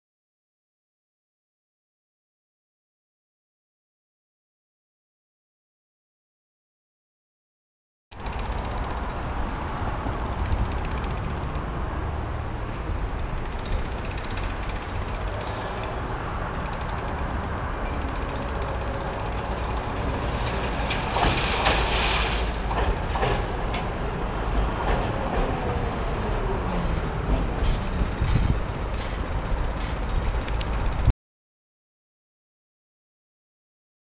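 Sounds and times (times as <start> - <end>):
tram wheels rumbling: 8.2 - 31.1.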